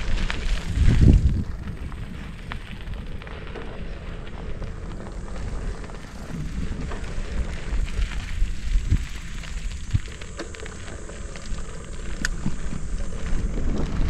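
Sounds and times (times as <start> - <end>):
wind rumbling on microphone: 0.0 - 14.0
faint clicks: 9.2 - 14.0.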